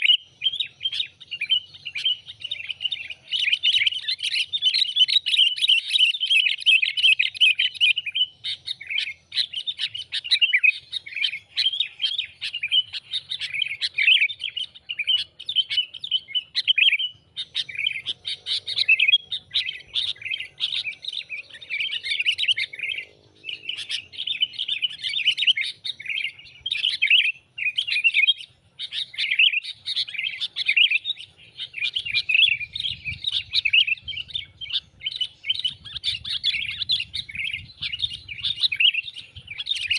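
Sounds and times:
bird chattering rapid chirps: 0.0s - 39.9s.

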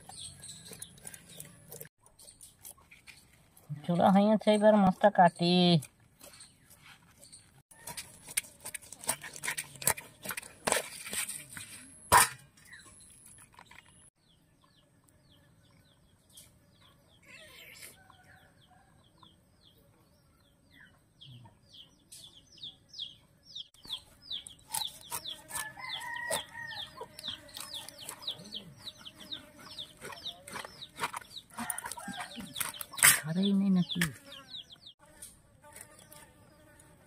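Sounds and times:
chicks peeping: 20.7s - 35.0s
chickens clucking: 23.0s - 35.0s.

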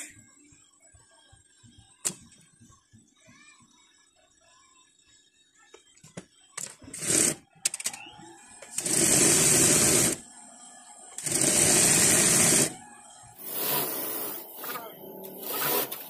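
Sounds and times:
sewing machine stitching: 6.9s - 8.0s, 8.7s - 10.2s, 11.2s - 12.8s, 13.4s - 16.0s.

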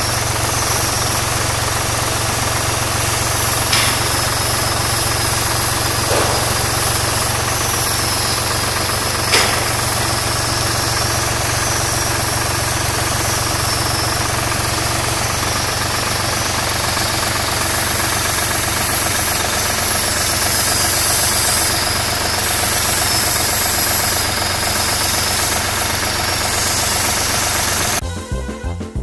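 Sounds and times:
tractor diesel engine idling: 0.0s - 29.0s
keyboard music: 28.0s - 29.0s.

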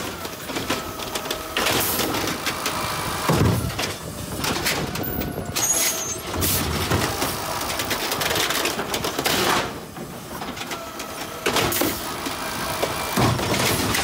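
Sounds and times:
hydraulic arm whine: 0.0s - 7.8s
trash cart clattering: 0.0s - 14.0s.

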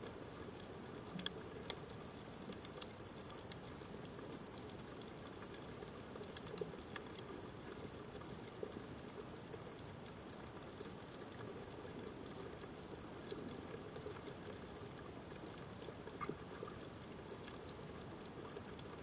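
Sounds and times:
faint steady hiss: 0.0s - 19.0s
snapping shrimp clicks: 1.1s - 1.8s, 2.5s - 3.8s, 6.3s - 7.3s.

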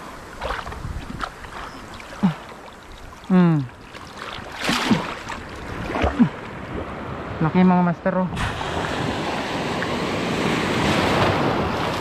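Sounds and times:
seawater washing over rocks: 0.0s - 6.9s, 8.4s - 12.0s
fish splashing out of water: 4.0s - 6.4s.

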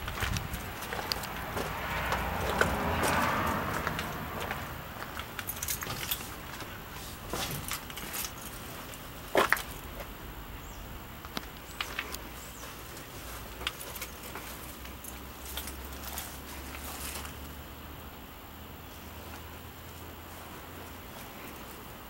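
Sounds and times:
footsteps on grass: 0.0s - 7.7s.

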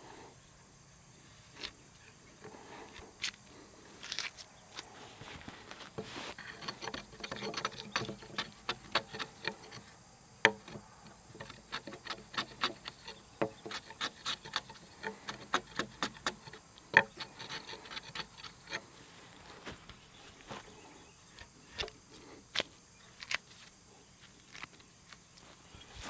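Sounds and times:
chisel shaving wood: 6.0s - 18.9s.

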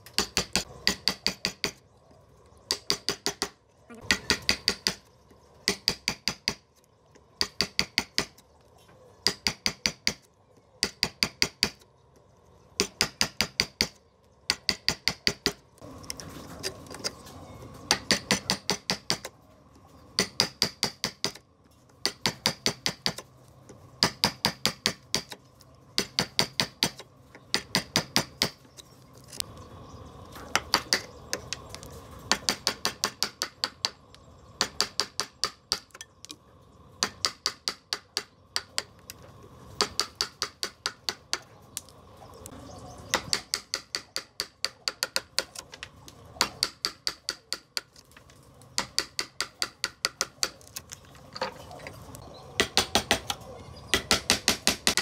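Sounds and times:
hammer striking wood chisel: 0.0s - 1.8s, 2.7s - 6.6s, 7.4s - 8.3s, 9.2s - 11.8s, 12.8s - 15.6s, 17.9s - 19.3s, 20.2s - 21.4s, 22.0s - 23.2s, 24.0s - 25.4s, 26.0s - 28.6s, 32.3s - 34.0s, 34.6s - 36.0s, 37.0s - 38.9s, 39.8s - 41.5s, 43.1s - 45.6s, 46.4s - 48.0s, 48.8s - 50.6s, 52.6s - 55.0s.

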